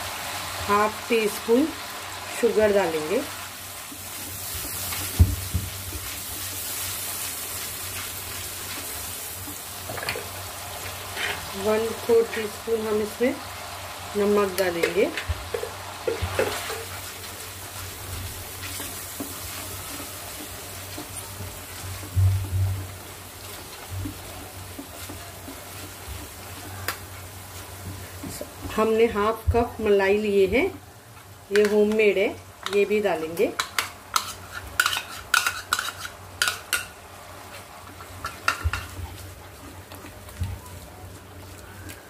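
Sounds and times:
sauce sizzling: 0:00.0 - 0:42.0
wooden spatula scraping pan: 0:09.9 - 0:11.6, 0:33.7 - 0:36.8
wooden spatula stirring sauce: 0:22.8 - 0:28.8.

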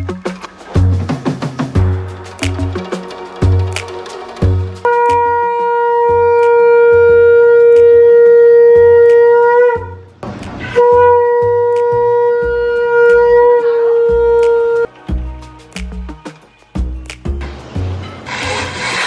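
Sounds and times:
conch shell blasts: 0:04.8 - 0:10.0, 0:10.7 - 0:14.8.

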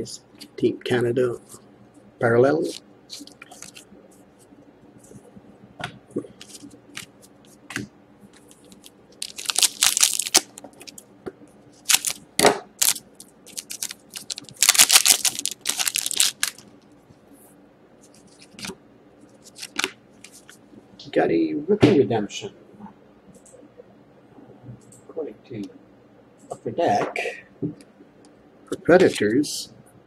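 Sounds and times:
cards clicking and rustling: 0:08.4 - 0:11.0, 0:11.9 - 0:12.2, 0:12.8 - 0:16.7, 0:19.5 - 0:20.5
foil wrapper tearing and crinkling: 0:09.2 - 0:10.6, 0:11.9 - 0:12.2, 0:12.8 - 0:16.6, 0:19.5 - 0:19.9.

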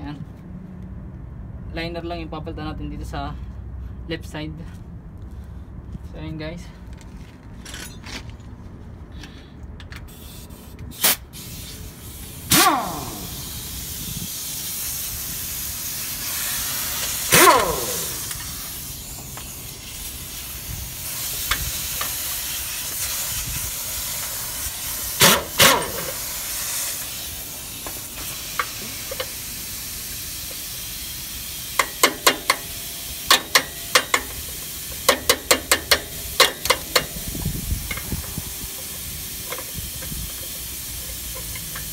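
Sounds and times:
steady hiss: 0:10.1 - 0:41.9.

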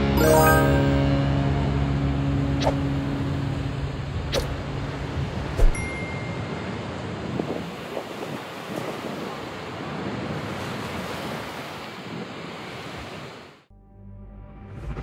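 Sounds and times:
ocean surf breaking: 0:02.8 - 0:13.6
wind buffeting microphone: 0:06.3 - 0:13.1.

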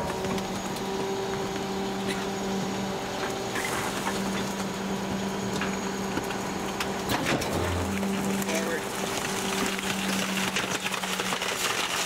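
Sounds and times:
hydraulic hum: 0:00.0 - 0:11.9.

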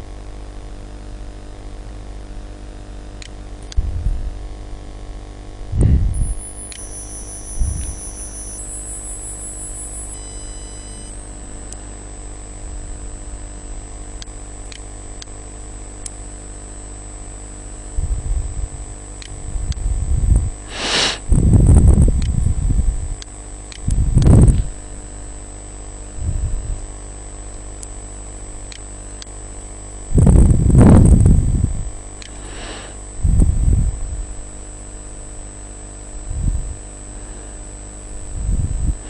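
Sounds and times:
electrical hum and hiss: 0:00.0 - 0:39.0
faint high whine: 0:00.0 - 0:39.0
loud noisy burst: 0:20.7 - 0:21.4.

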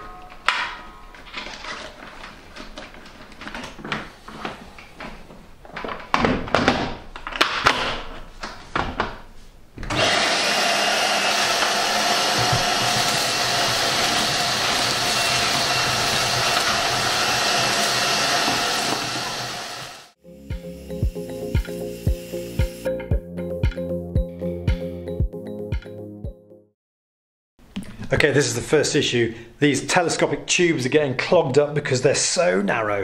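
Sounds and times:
vacuum cleaner motor whining: 0:09.9 - 0:22.9.

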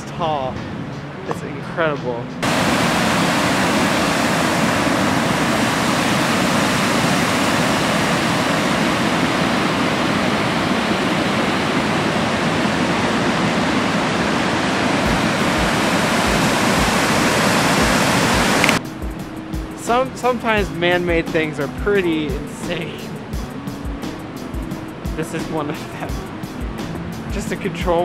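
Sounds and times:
water rushing over spillway: 0:02.4 - 0:18.8.

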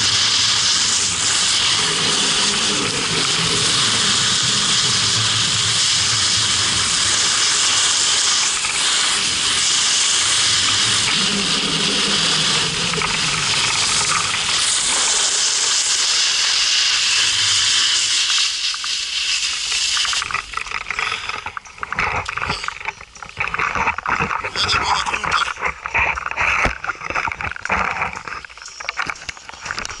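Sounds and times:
snowboard sliding on snow: 0:00.0 - 0:21.4
snowboard scraping and crunching: 0:00.0 - 0:30.0.

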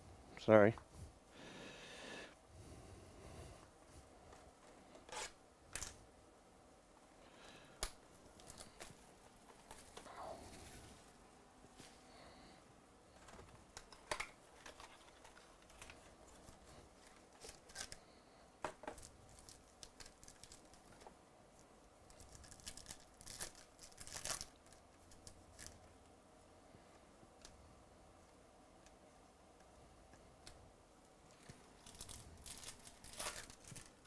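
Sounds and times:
wrapper crinkling and tearing: 0:18.9 - 0:20.9, 0:22.1 - 0:25.8, 0:31.4 - 0:34.0.

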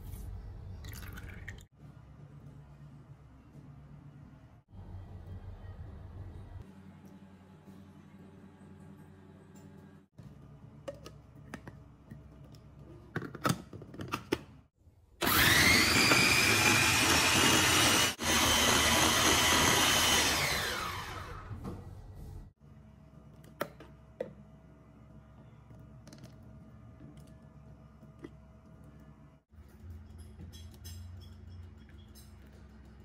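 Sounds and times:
blender motor whining: 0:15.2 - 0:21.5.

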